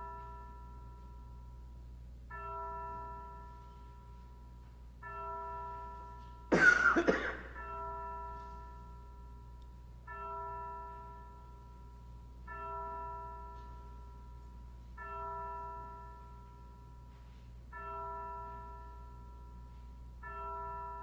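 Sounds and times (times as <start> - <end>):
loud cough: 6.5 - 7.6.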